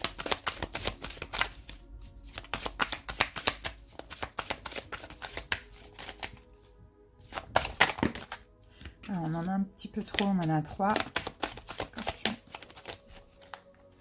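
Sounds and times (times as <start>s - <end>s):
cards being shuffled: 0.0s - 14.0s.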